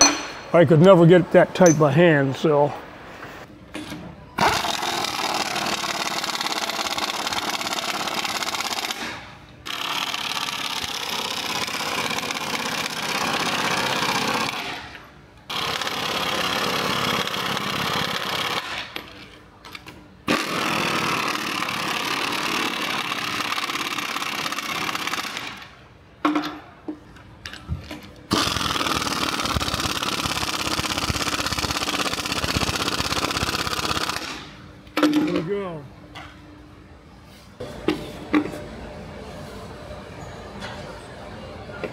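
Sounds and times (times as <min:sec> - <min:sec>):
pneumatic impact wrench: 0:04.4 - 0:19.2, 0:20.3 - 0:25.7, 0:28.3 - 0:34.6.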